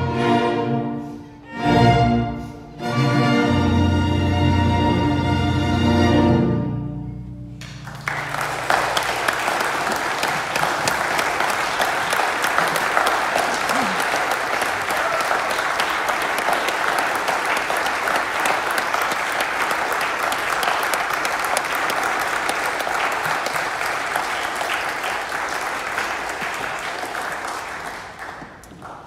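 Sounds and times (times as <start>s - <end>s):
audience applauding: 7.6s - 29.0s.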